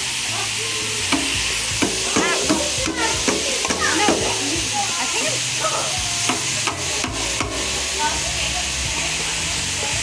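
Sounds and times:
meat sizzling in a frying pan: 0.0s - 10.0s
utensil scraping pan: 1.1s - 4.9s, 6.2s - 8.4s.

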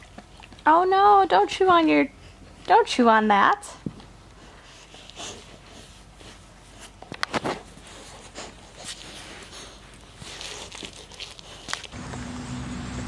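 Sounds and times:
puppy chewing a toy: 0.0s - 0.7s, 4.0s - 12.0s.

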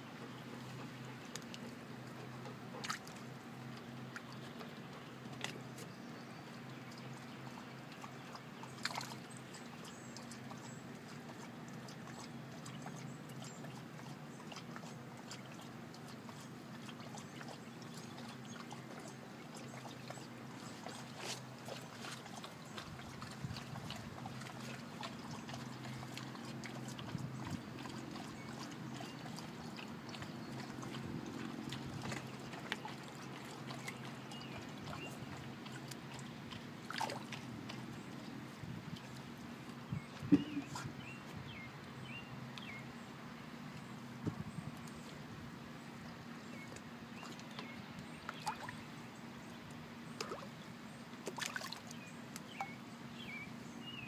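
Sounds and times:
water lapping and trickling: 0.0s - 54.0s.

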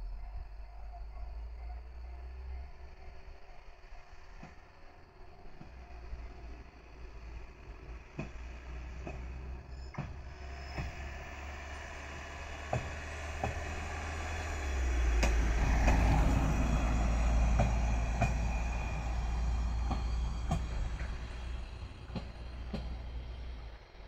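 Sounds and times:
wheels clicking over rail joints: 6.6s - 24.0s.

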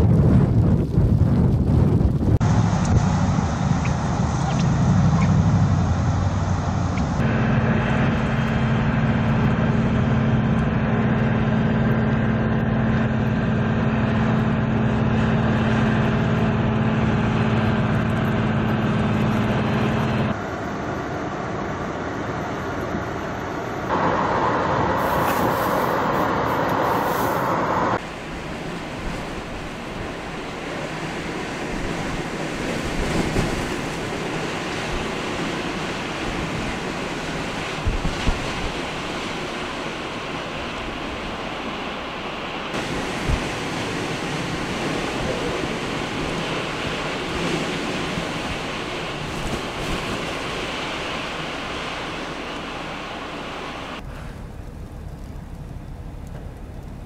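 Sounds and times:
blizzard wind: 0.0s - 57.0s
snowblower truck engine humming: 2.4s - 20.4s, 21.4s - 37.9s, 38.7s - 55.0s
blowing snow: 23.9s - 41.9s, 42.6s - 54.3s.

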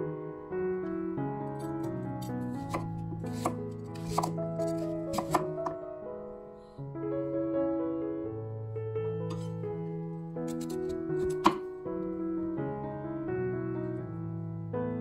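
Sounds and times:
background music: 0.0s - 15.0s
knife chopping on wooden board: 2.6s - 5.8s, 10.5s - 11.6s.

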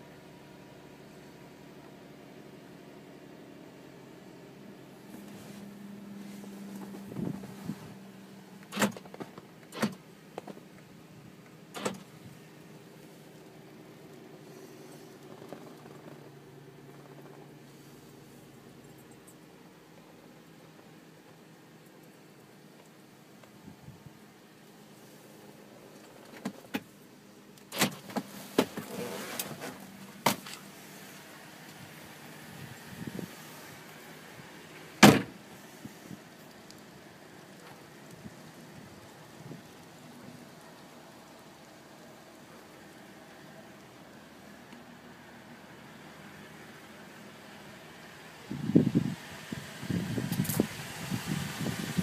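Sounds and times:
rustling: 5.0s - 19.5s, 24.6s - 41.6s.

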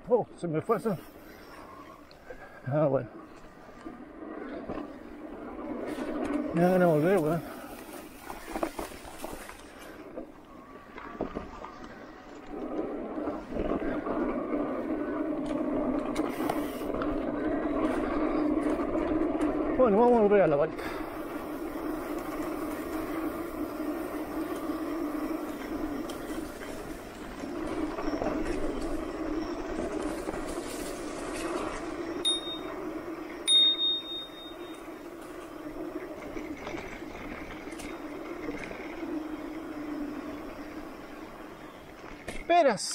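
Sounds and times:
mountain bike ride noise: 0.0s - 42.9s
bicycle bell ringing: 32.2s - 35.0s.

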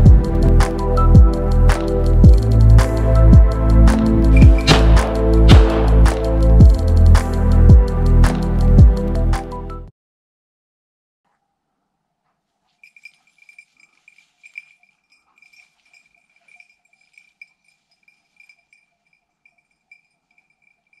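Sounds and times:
small bell jingling: 12.7s - 21.0s.

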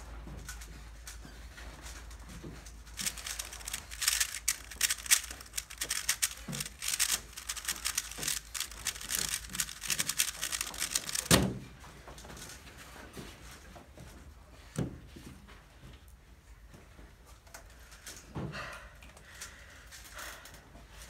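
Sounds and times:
puzzle cube plastic clicks: 2.9s - 11.4s.

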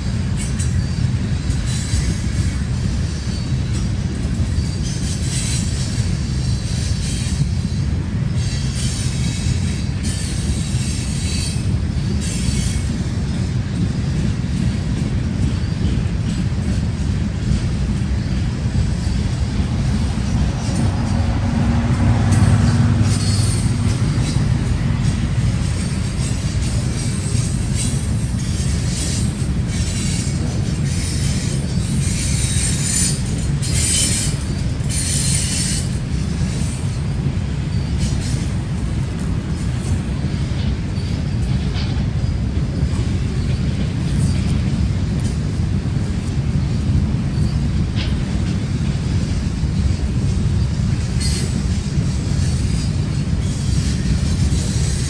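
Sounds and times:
train wheels rumbling on rail: 0.0s - 55.0s
wheel squeal: 17.5s - 45.0s, 46.6s - 48.2s, 50.5s - 55.0s.

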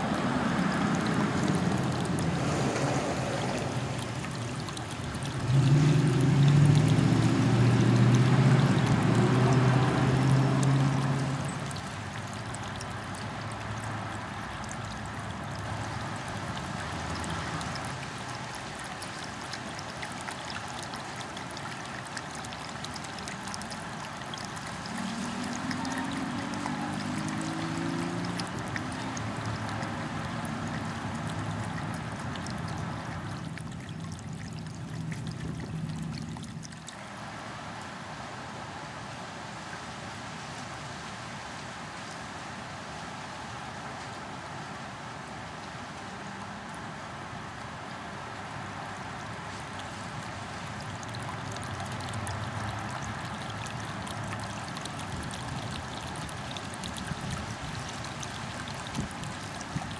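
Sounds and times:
low engine hum: 0.0s - 18.7s, 22.0s - 37.8s
fountain trickling and splashing: 0.0s - 59.9s.

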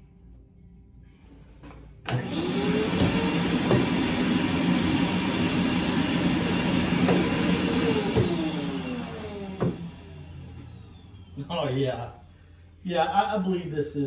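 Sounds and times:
vacuum motor whining and rushing: 2.1s - 11.7s.

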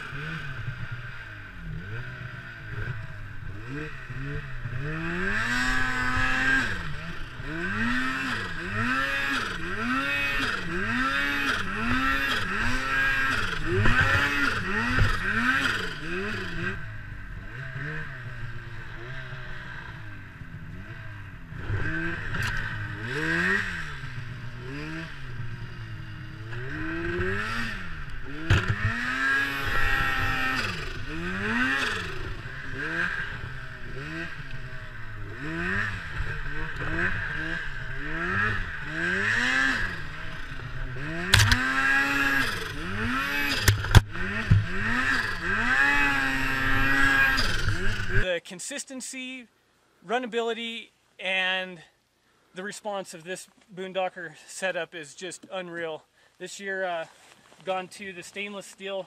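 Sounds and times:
snowmobile engine revving: 0.0s - 49.2s.

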